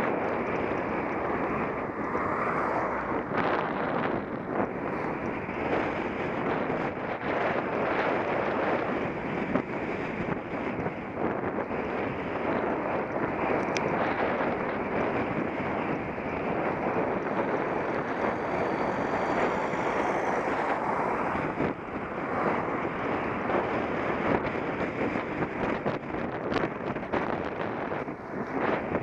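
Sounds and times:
wind buffeting microphone: 0:00.0 - 0:29.0.

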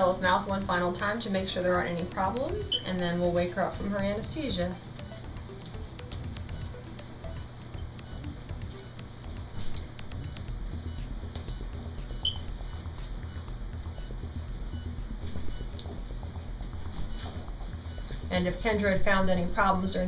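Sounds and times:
monitor beeping: 0:00.0 - 0:20.0.

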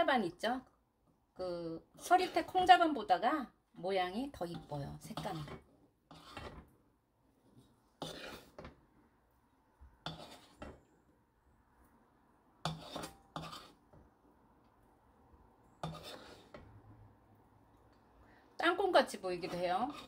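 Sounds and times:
wooden spoon scraping a pan: 0:02.0 - 0:03.2, 0:03.8 - 0:08.9, 0:09.9 - 0:11.0, 0:12.6 - 0:14.1, 0:15.7 - 0:16.9, 0:18.6 - 0:20.0.

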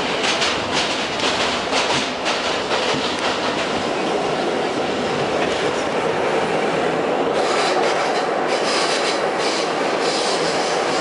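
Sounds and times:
subway wheels rumbling on rail: 0:00.0 - 0:11.0.

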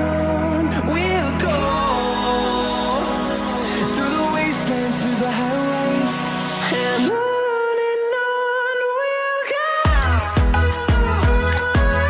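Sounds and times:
electronic music with kick drum: 0:09.9 - 0:12.0.

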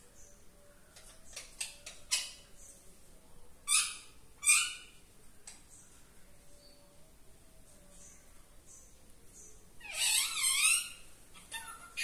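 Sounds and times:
parakeet chirping: 0:09.8 - 0:12.0
parakeet screeching: 0:09.8 - 0:12.0.

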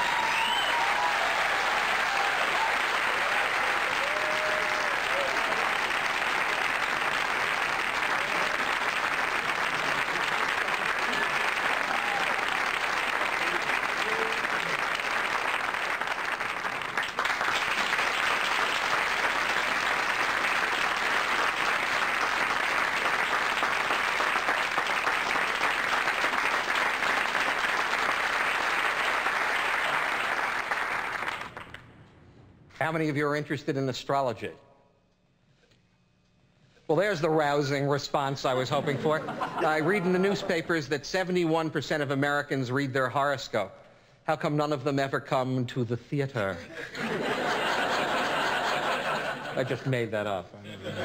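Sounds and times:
audience applauding: 0:00.0 - 0:31.9, 0:47.0 - 0:49.8.

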